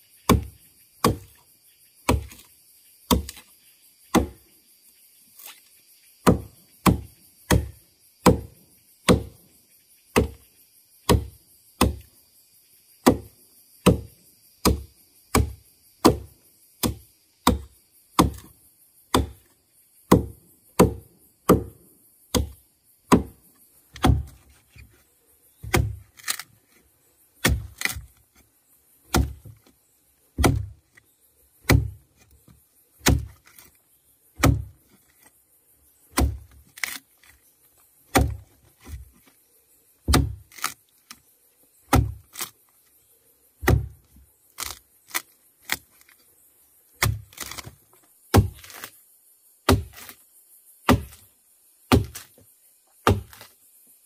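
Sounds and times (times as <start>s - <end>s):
wood being chopped: 0.2s - 1.4s, 2.0s - 2.5s, 3.1s - 3.5s, 4.1s - 4.4s, 6.2s - 9.4s, 10.1s - 10.4s, 11.0s - 12.1s, 13.0s - 18.5s, 19.1s - 19.5s, 20.1s - 24.5s, 25.6s - 26.5s, 27.4s - 28.2s, 29.1s - 29.7s, 30.4s - 30.8s, 31.6s - 32.0s, 33.0s - 33.7s, 34.4s - 34.8s, 36.1s - 37.4s, 38.1s - 39.2s, 40.0s - 41.2s, 41.8s - 42.5s, 43.6s - 45.9s, 47.0s - 49.0s, 49.6s - 50.2s, 50.8s - 51.3s, 51.9s - 52.4s, 53.0s - 53.5s.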